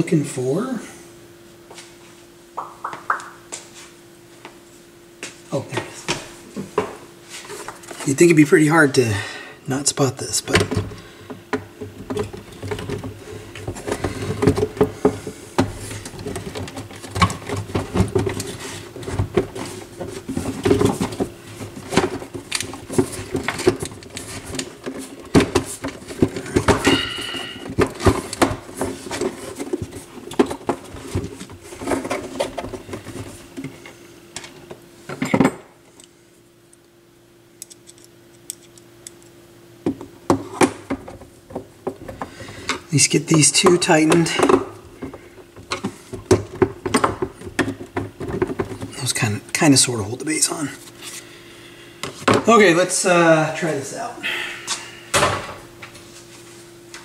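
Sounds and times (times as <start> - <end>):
faint steady hum: 0.0 - 57.0
plastic clattering and knocking: 10.5 - 33.7, 39.8 - 42.7, 43.6 - 49.0.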